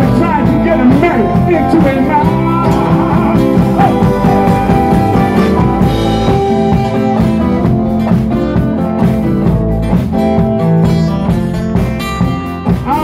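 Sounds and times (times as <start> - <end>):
drum kit beat: 0.0 - 13.0
electric bass: 0.0 - 13.0
electric guitars strumming: 0.0 - 13.0
harmonica: 1.4 - 8.0.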